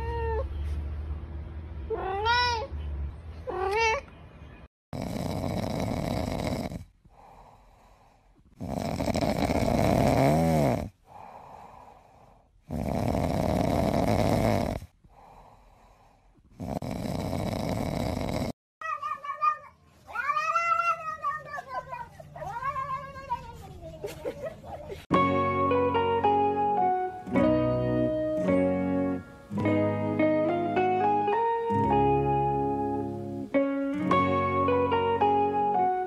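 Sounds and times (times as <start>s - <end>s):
cat making rasping sounds: 18.8s - 23.6s.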